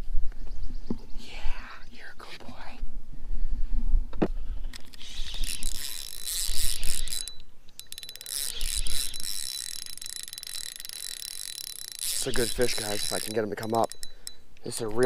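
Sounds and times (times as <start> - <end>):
fishing reel ratcheting clicks: 4.7 - 15.0.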